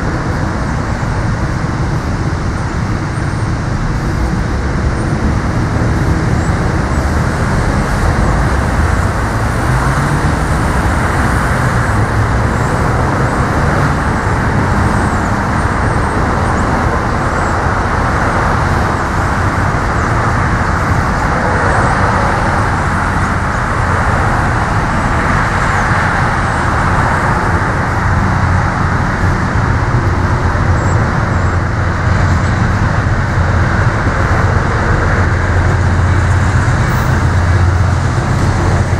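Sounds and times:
diesel locomotive engine rumbling: 0:00.0 - 0:38.9.

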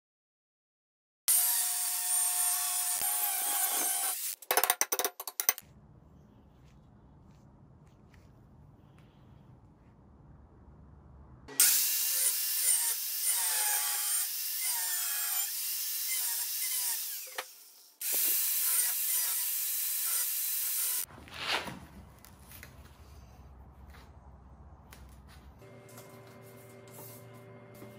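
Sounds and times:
angle grinder cutting steel: 0:01.3 - 0:04.4, 0:11.5 - 0:21.1.

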